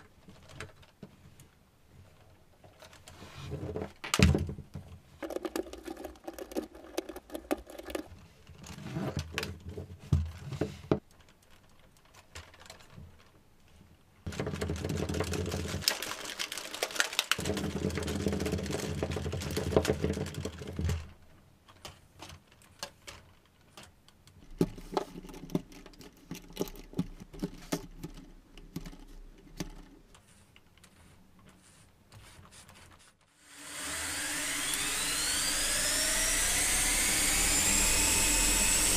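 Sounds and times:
small plastic parts clicking: 0:05.2 - 0:09.6, 0:11.0 - 0:13.4, 0:14.3 - 0:31.6
motors whining up: 0:33.5 - 0:38.9.

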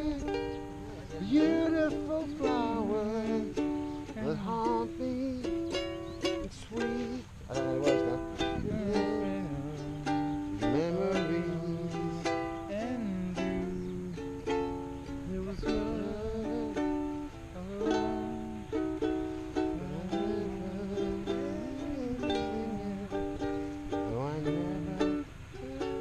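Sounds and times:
man humming: 0:00.0 - 0:26.0
ukulele strumming chords: 0:00.0 - 0:26.0.

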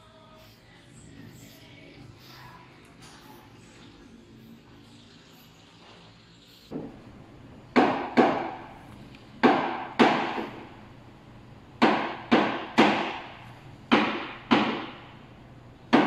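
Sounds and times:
portafilter knocking on knock box: 0:09.4 - 0:10.6.

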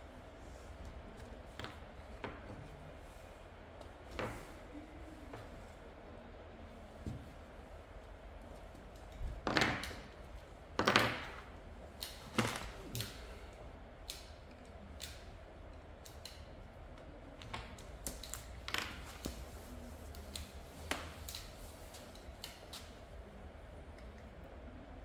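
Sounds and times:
wire-stripping pliers clicking: 0:14.0 - 0:15.3, 0:16.0 - 0:16.5.

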